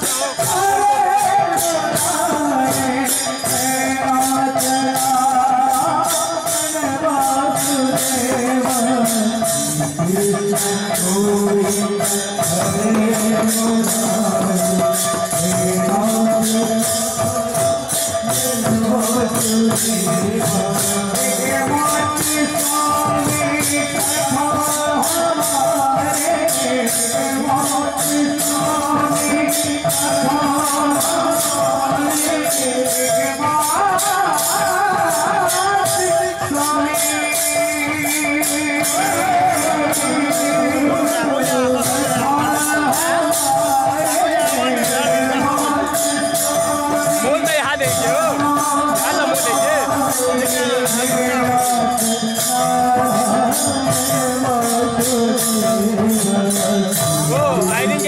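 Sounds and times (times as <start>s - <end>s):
hand cymbals clashing: 0.0s - 58.0s
held instrumental tones: 0.0s - 58.0s
men singing a chant: 0.0s - 58.0s.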